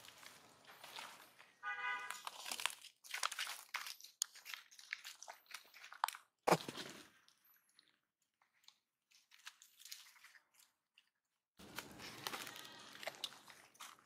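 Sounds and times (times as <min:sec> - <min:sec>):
dry leaves crunching: 0:00.0 - 0:03.9, 0:11.6 - 0:14.0.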